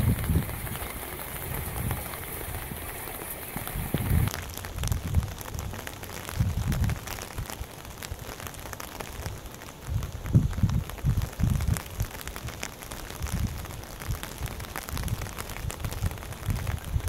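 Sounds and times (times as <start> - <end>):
wind buffeting microphone: 0.0 - 8.2, 9.8 - 17.0
rain falling on wet ground: 0.0 - 17.0.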